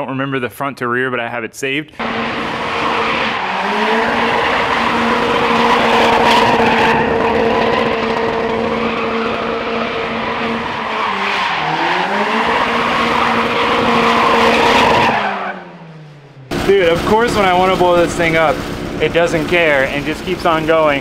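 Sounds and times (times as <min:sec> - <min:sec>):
tires squealing and skidding: 0:02.0 - 0:16.0
car engine at high revs: 0:02.0 - 0:21.0.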